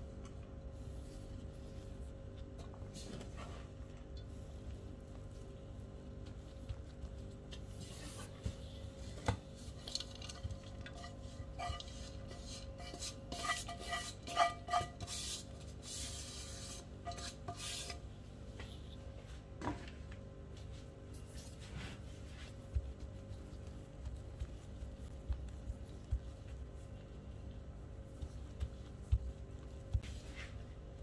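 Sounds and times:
pot scraping against metal pan: 10.0 - 18.0.

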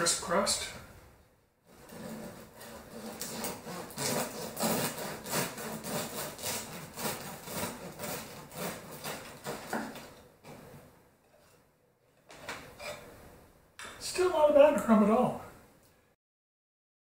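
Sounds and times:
bread knife sawing through crust: 1.7 - 10.6.

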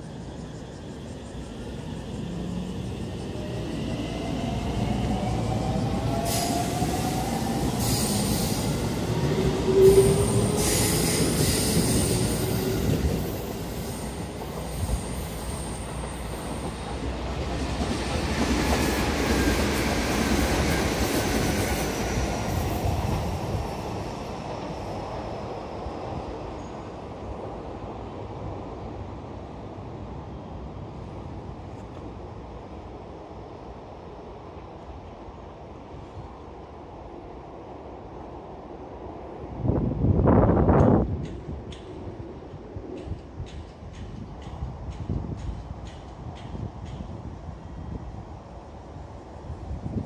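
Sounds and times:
steel wheels squealing on rail: 0.0 - 17.2
electric train running on rails: 0.0 - 50.0.

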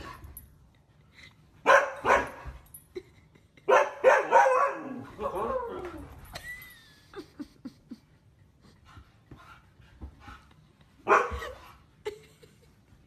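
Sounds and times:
dog barking: 1.7 - 2.4, 3.7 - 5.0, 11.1 - 11.4.

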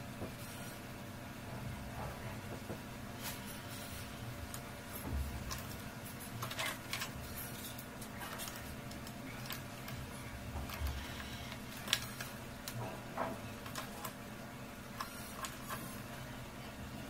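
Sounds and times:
steady low hum: 0.0 - 17.0
plastic parts clicking and tapping: 6.4 - 14.2.

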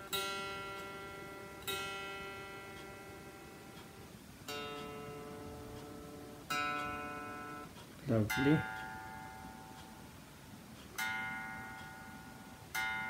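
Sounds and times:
electric guitar strings plucked: 0.0 - 3.8, 4.5 - 9.8.

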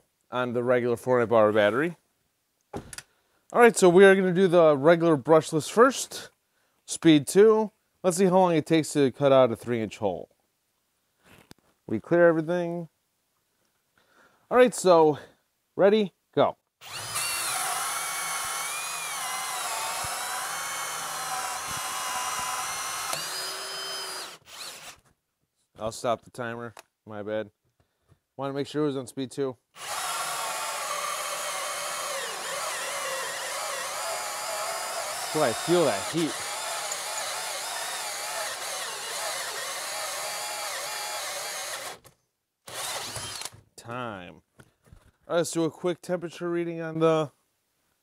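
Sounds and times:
drill motor whine: 16.8 - 25.0, 29.8 - 42.0, 42.7 - 43.6
hole saw rasping through wood: 16.8 - 25.0, 29.8 - 42.1, 42.7 - 43.5.

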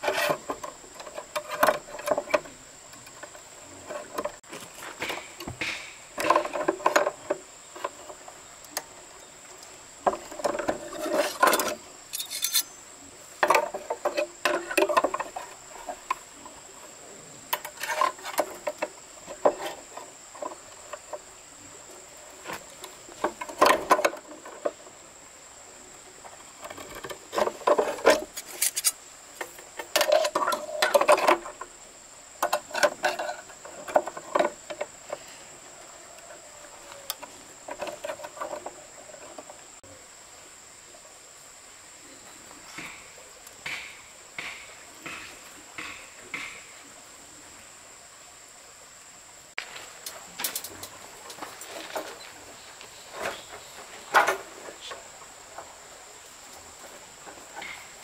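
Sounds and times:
knocks and scrapes: 0.0 - 8.4, 10.0 - 21.3, 22.4 - 24.9, 26.2 - 31.7, 32.4 - 35.5, 36.2 - 39.8, 49.6 - 55.8.

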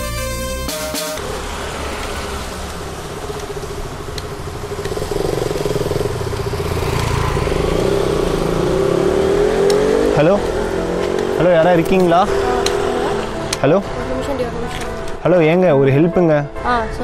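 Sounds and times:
engine hum: 0.0 - 17.0
street traffic: 0.0 - 17.0
motorcycles passing: 0.9 - 17.0.

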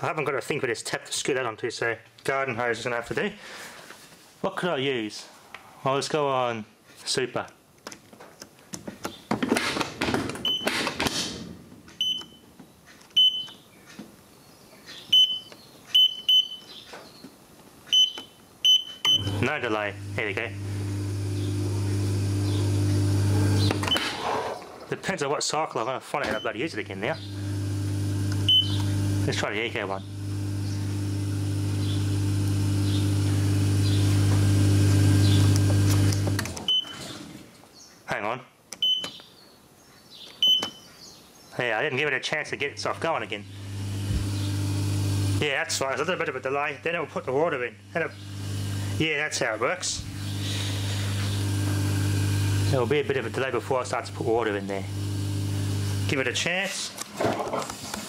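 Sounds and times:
dishwasher control panel beeps: 10.4 - 10.7, 12.0 - 12.4, 13.2 - 13.6, 15.1 - 16.6, 17.9 - 19.4, 28.4 - 28.9, 36.7 - 37.0, 38.8 - 39.2, 40.4 - 40.8
dishwasher pump motor humming: 19.2 - 23.9, 27.2 - 36.8, 42.8 - 45.4, 47.9 - 49.4, 50.0 - 56.3.

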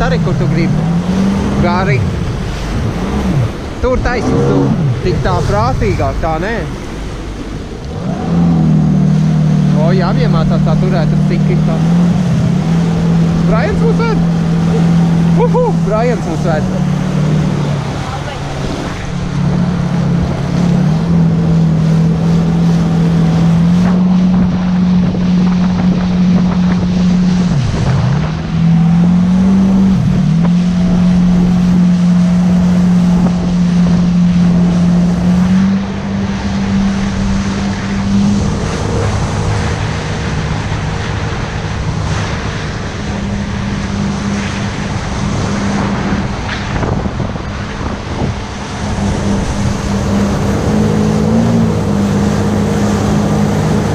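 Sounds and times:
jet ski engine running: 0.0 - 53.9
rushing water: 0.0 - 53.9
wind buffeting microphone: 0.0 - 53.9.

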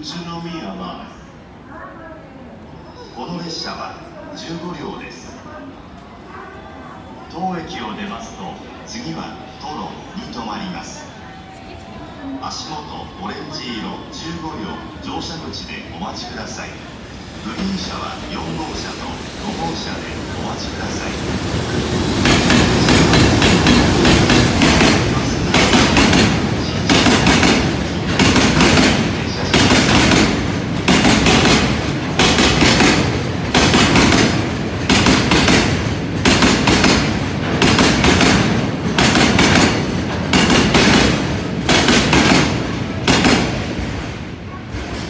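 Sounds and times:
train wheels clattering over rail joints: 22.2 - 45.0.

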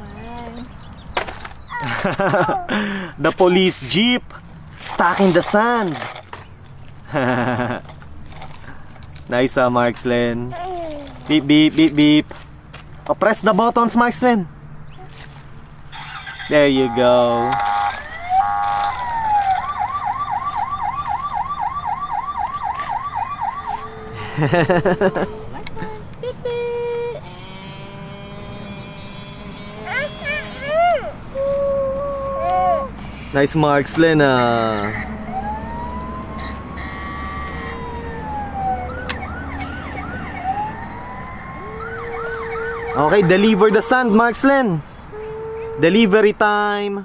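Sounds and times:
toy siren yelping: 16.0 - 27.3, 28.8 - 32.9, 34.7 - 44.2.

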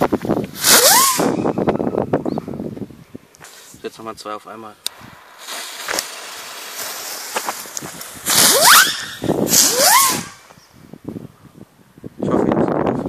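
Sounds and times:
fireworks fuses fizzing: 0.0 - 1.6, 3.4 - 4.1, 4.8 - 10.6
firework whistling launch: 0.5 - 1.9, 4.9 - 10.6.

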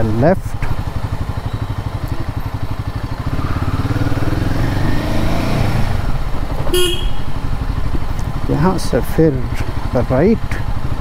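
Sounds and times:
motorcycle engine accelerating: 0.6 - 11.0.

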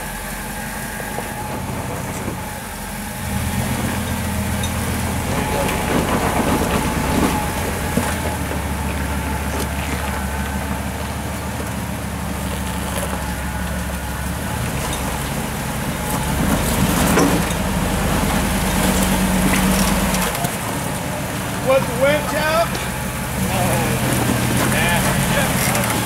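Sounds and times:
car engine running at low revs: 0.0 - 26.0.

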